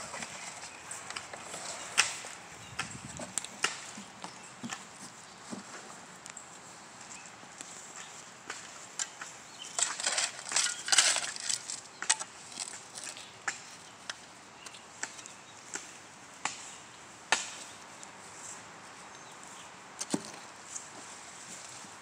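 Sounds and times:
shovel scraping soil: 9.1s - 13.3s.

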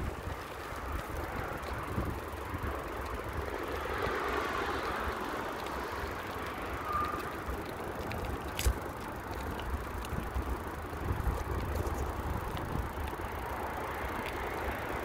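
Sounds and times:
bicycle tyre and wind rumble: 0.0s - 15.0s.

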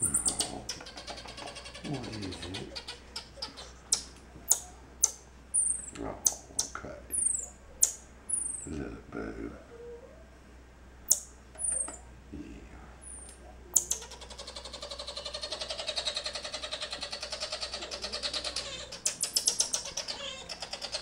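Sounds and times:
fast monkey chatter: 0.2s - 3.7s
high falling chirps: 3.4s - 8.7s.

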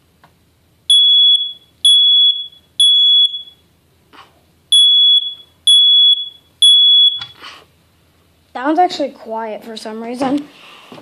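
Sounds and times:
smoke alarm high-pitched beeps: 0.9s - 3.6s, 4.7s - 7.4s.

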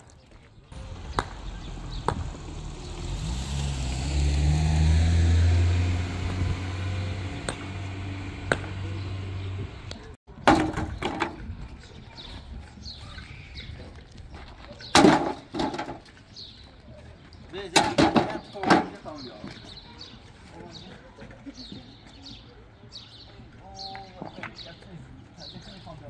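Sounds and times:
vehicle engine passing by: 0.8s - 10.2s
stones dropped into metal wheelbarrow: 10.4s - 11.5s, 14.9s - 16.1s, 17.8s - 19.0s.

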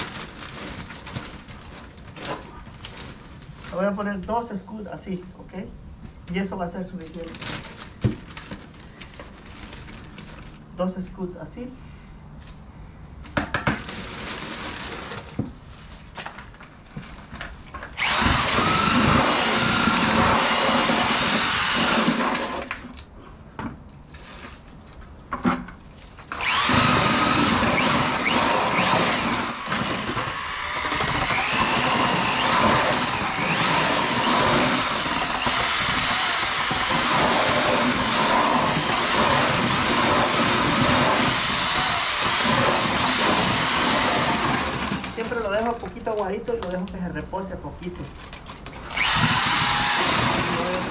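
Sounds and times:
drill with paddle mixer churning: 17.9s - 22.8s, 26.3s - 45.4s, 48.8s - 50.9s.

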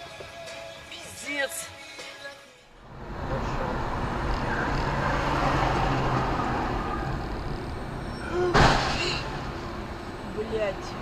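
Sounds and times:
car road noise: 2.7s - 11.0s.

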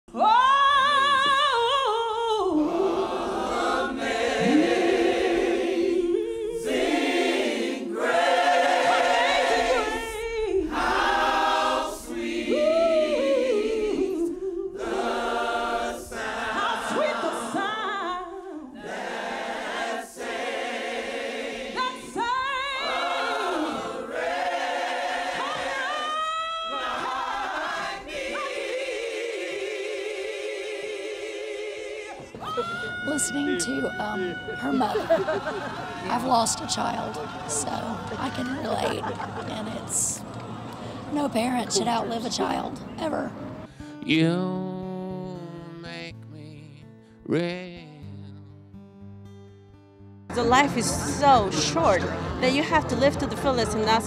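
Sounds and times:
woman singing into microphone: 0.1s - 2.9s, 16.6s - 18.8s, 32.4s - 35.2s
choir singing: 0.2s - 43.4s.

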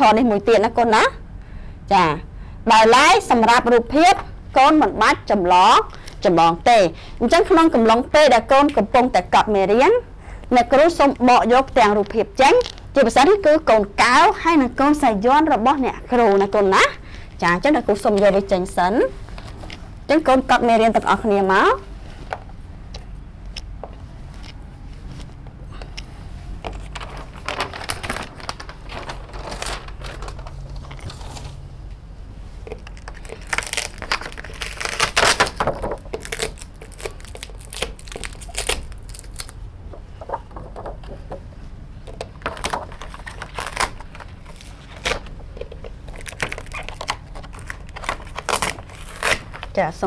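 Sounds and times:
paper rustling and crinkling: 26.5s - 31.7s, 32.5s - 41.3s, 42.1s - 49.8s.

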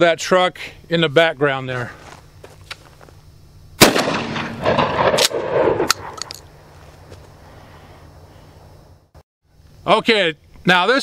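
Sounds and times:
shotgun blast echoing: 3.8s - 6.3s.

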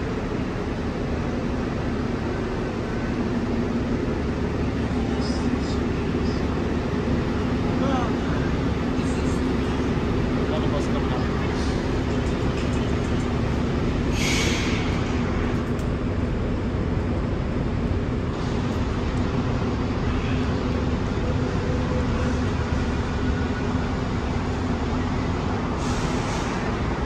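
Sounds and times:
heavy vehicle engine humming: 0.0s - 27.0s
air hiss: 14.1s - 15.0s, 25.8s - 26.7s.

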